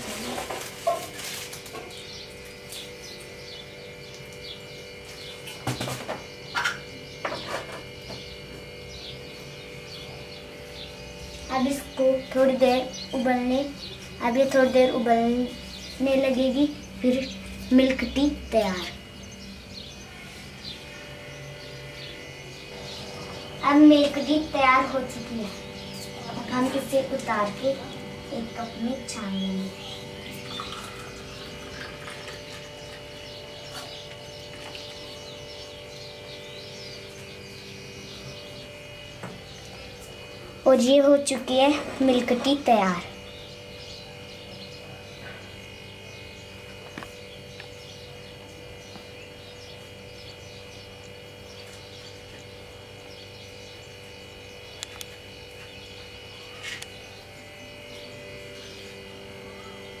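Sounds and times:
birds chirping faintly: 0.0 - 60.0
steady hum: 0.0 - 60.0
tea trickling into a glass: 30.5 - 32.4
faint bird chirps: 53.1 - 60.0.

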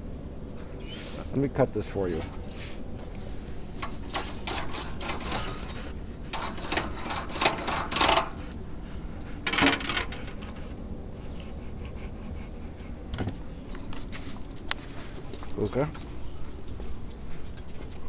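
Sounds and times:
metallic clatter: 3.8 - 8.5, 9.4 - 10.6
knife scraping metal sheet: 4.1 - 8.4.

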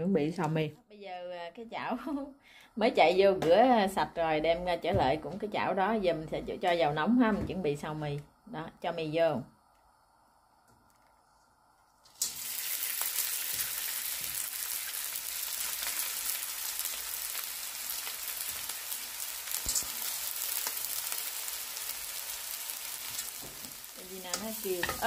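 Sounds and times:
noodles sizzling in oil: 12.0 - 25.0.

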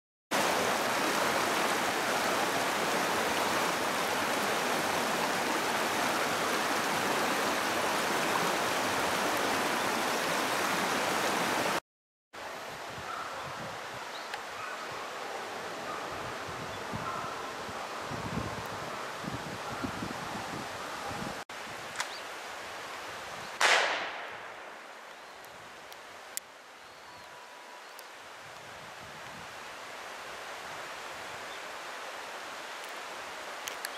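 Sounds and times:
river rushing over stones: 0.3 - 11.8
wind noise on microphone: 12.7 - 14.1, 16.1 - 21.8, 28.6 - 29.6
distant gunshot: 23.6 - 24.7.

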